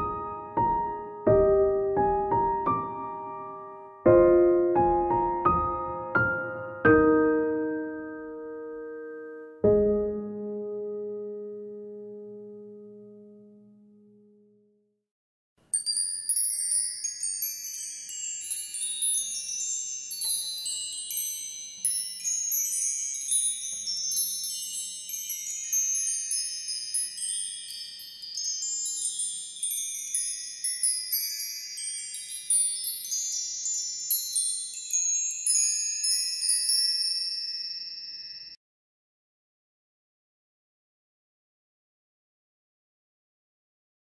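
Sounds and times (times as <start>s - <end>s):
wind chimes ringing: 15.7s - 38.6s.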